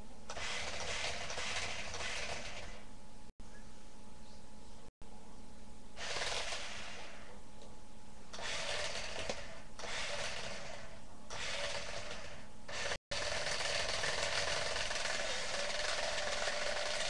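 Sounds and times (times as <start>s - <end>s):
toy car motor and gears whirring: 6.0s - 7.3s, 8.4s - 17.0s.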